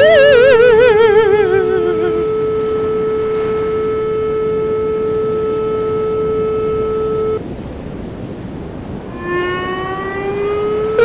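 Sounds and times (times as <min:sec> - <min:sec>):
buzzy electronic alarm tone: 0:00.0 - 0:07.4, 0:09.0 - 0:11.0
downward-sliding wail: 0:00.0 - 0:07.4, 0:09.0 - 0:11.0.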